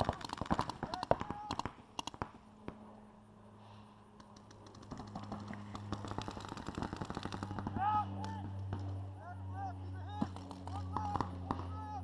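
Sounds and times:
paintball markers firing pops: 0.0 - 2.8, 4.2 - 9.0.

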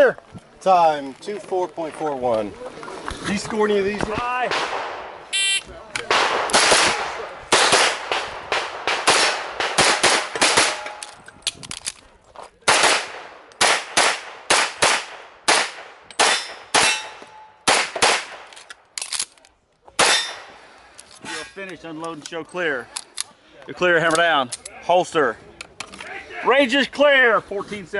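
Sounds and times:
pistol shots: 6.1 - 11.0, 12.7 - 18.5.

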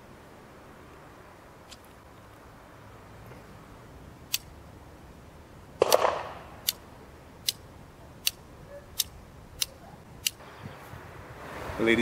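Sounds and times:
revolver cylinder clicks: 6.6 - 6.8.

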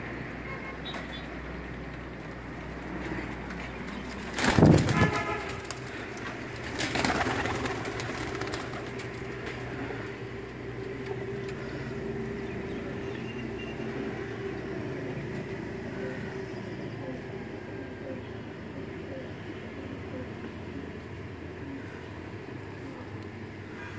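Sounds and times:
pigeons cooing: 14.2 - 23.9.

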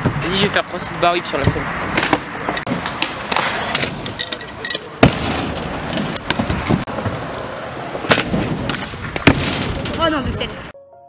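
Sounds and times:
scooter wheels rumbling on concrete: 1.9 - 10.7
scooter slamming on concrete: 5.0 - 7.2, 8.0 - 10.2.

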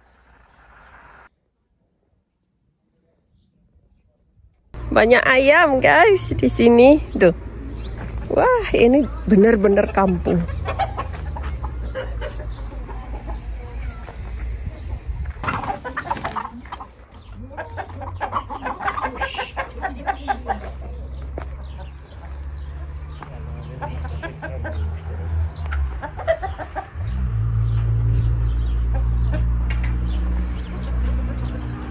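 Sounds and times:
chickens clucking: 7.4 - 31.9.

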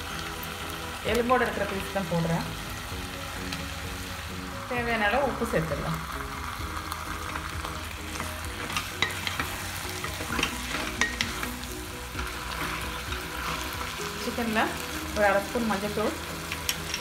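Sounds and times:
frying hiss in a pot: 0.0 - 17.0
spatula scraping and knocking pot: 8.1 - 11.6.

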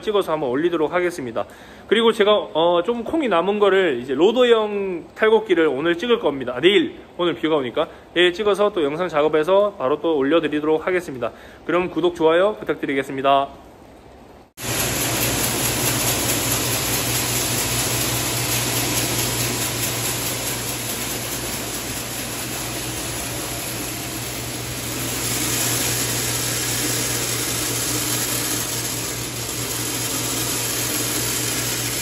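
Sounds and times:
beans pouring: 14.6 - 32.0
machine humming: 14.6 - 32.0.

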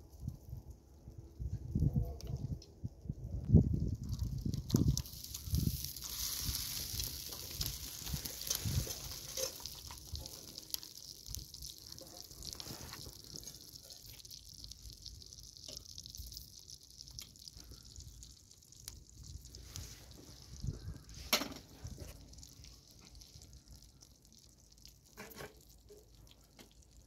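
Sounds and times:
light clicks and crackles: 0.0 - 27.0
food sizzling: 4.0 - 27.0.

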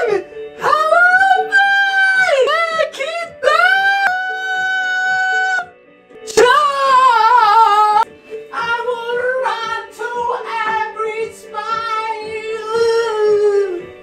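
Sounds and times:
music: 0.0 - 14.0
person singing long notes: 6.3 - 14.0.

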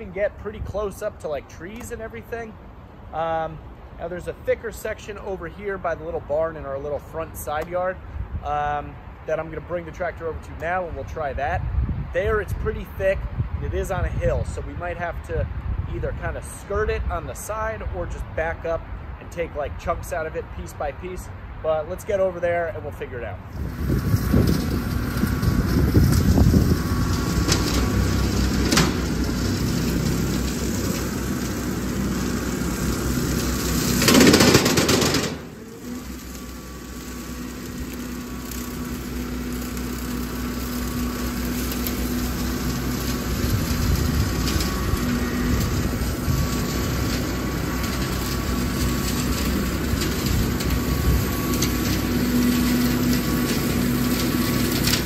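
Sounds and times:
rotary cutter mowing brush: 0.0 - 11.4, 12.2 - 55.0
diesel tractor engine: 12.2 - 55.0.

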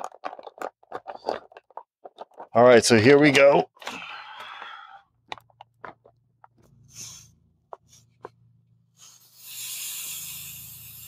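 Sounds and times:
plastic bag crinkling: 0.0 - 3.3.

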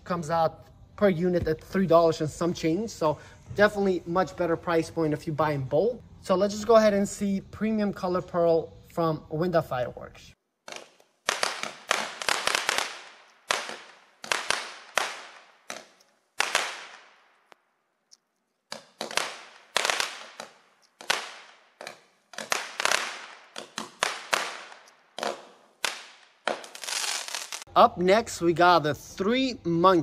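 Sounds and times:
firework shots popping: 10.7 - 17.5, 18.7 - 27.7.

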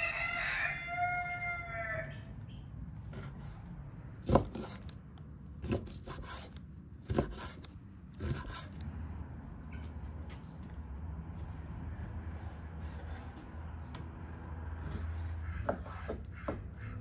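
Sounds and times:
knife chopping on wooden board: 4.2 - 5.0, 5.6 - 8.7, 15.6 - 16.7
knife scraping board: 4.3 - 5.0, 5.6 - 8.8.

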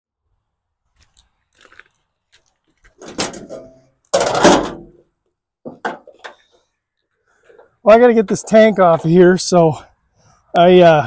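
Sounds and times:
sheet metal scraping and rattling: 3.0 - 5.0.

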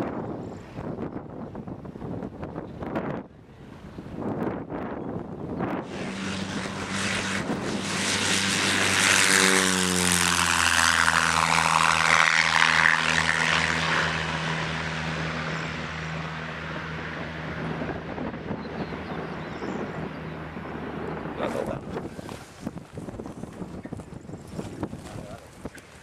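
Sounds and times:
light aircraft engine and propeller: 0.0 - 26.0.

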